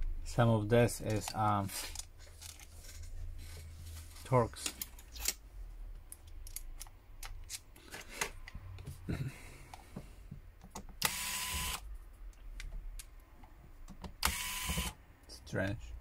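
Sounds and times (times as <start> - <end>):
electric screwdriver motor whirring: 11.0 - 11.8, 14.2 - 15.0
tool clicks and taps: 12.3 - 15.0.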